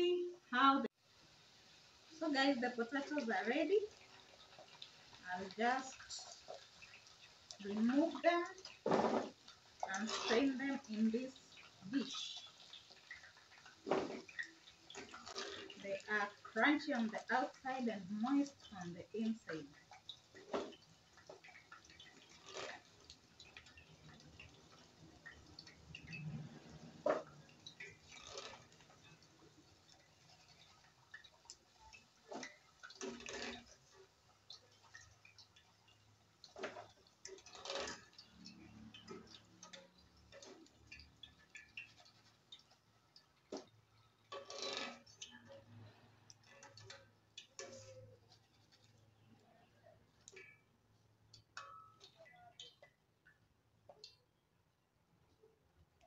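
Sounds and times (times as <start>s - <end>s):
oil dripping: 3.9s - 55.1s
metal strainer scraping a pan: 8.7s - 10.6s, 13.9s - 16.3s, 22.0s - 23.5s, 26.0s - 29.3s, 32.3s - 33.8s, 36.5s - 42.5s, 44.2s - 49.0s.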